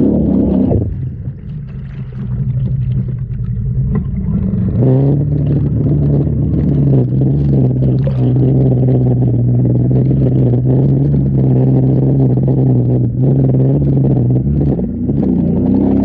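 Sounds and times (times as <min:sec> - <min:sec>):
off-road vehicle engine revving: 0:00.0 - 0:01.1, 0:04.3 - 0:16.0
water splashing and rushing: 0:00.0 - 0:16.0.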